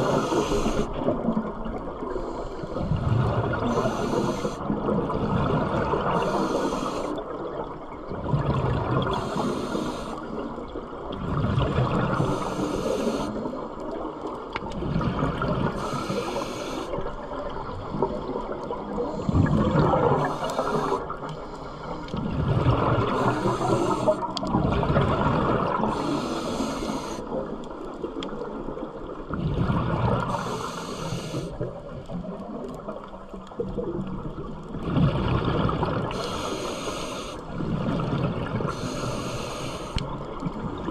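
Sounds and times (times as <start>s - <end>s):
regulator inhale hiss: 0.0s - 1.0s, 2.1s - 3.0s, 3.6s - 4.7s, 6.1s - 7.2s, 9.1s - 10.4s, 12.2s - 13.6s, 15.8s - 17.0s, 20.2s - 22.2s, 23.1s - 24.4s, 25.9s - 27.4s, 30.2s - 31.6s, 36.1s - 37.6s, 38.7s - 40.2s.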